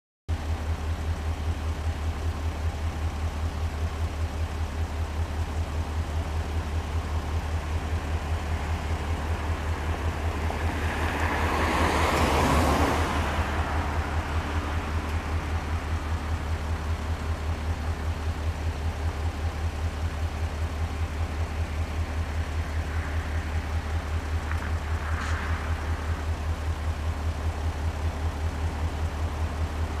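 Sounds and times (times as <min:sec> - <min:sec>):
diesel locomotive idling: 0:00.3 - 0:30.0
broad rush of noise: 0:21.0 - 0:28.9.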